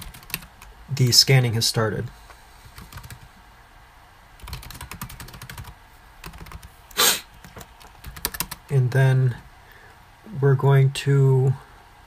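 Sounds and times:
computer keyboard typing: 0.0s - 0.7s, 2.7s - 3.3s, 4.4s - 6.7s, 7.4s - 8.6s
short hissing burst: 6.9s - 7.3s.

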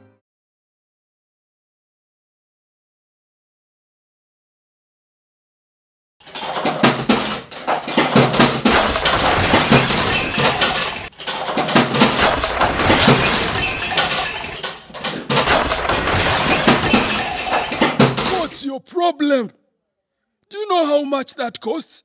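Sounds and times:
dishes and cutlery clattering: 6.2s - 18.5s.

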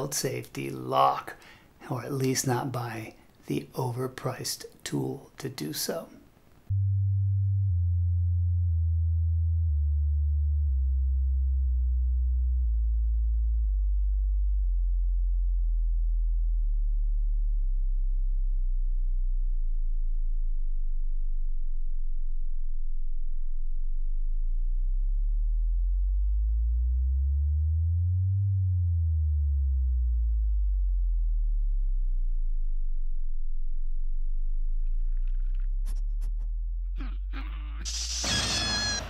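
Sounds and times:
low sine-wave tone gliding: 6.7s - 36.9s.

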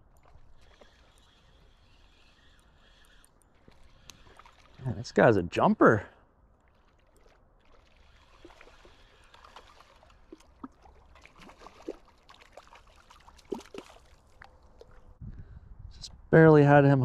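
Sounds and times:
fish splashing at water surface: 6.6s - 15.0s.

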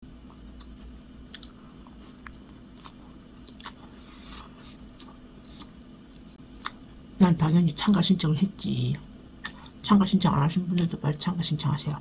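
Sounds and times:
faint steady hum: 0.0s - 12.0s
person chewing: 0.1s - 6.9s
mouth clicks and smacks: 4.8s - 6.8s, 9.4s - 9.7s.

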